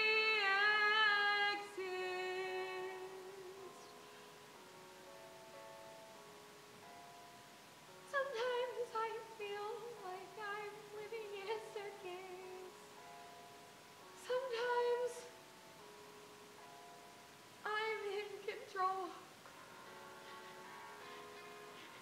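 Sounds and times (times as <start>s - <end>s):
woman singing with vibrato: 0.0s - 4.0s, 8.1s - 12.9s, 14.2s - 15.4s, 17.6s - 19.3s
quiet held-note accompaniment: 0.0s - 22.0s.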